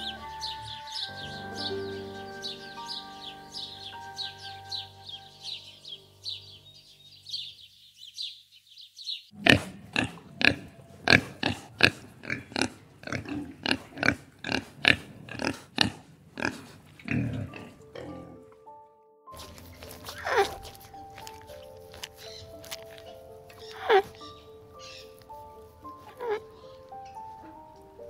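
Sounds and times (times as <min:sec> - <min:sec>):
soft music: 0:00.0 - 0:07.7, 0:17.1 - 0:28.0
bird chirping: 0:00.0 - 0:11.1, 0:19.3 - 0:28.0
pigs grunting: 0:09.4 - 0:18.5, 0:19.4 - 0:24.5, 0:26.0 - 0:26.6.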